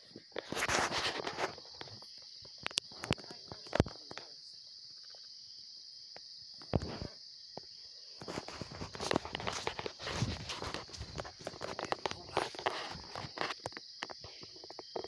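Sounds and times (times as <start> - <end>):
insects chorus: 0.0 - 15.0
scuffing rustle: 8.2 - 13.6.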